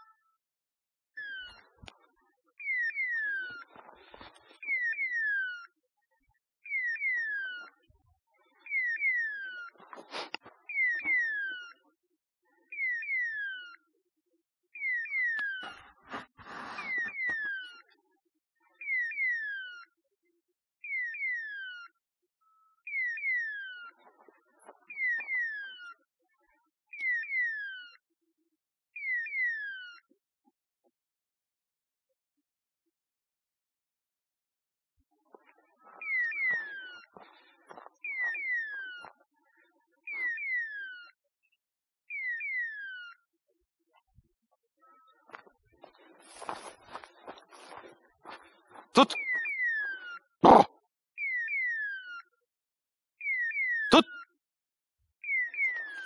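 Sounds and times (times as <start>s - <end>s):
falling electronic chirps: 14.8s - 17.8s, 35.9s - 39.1s.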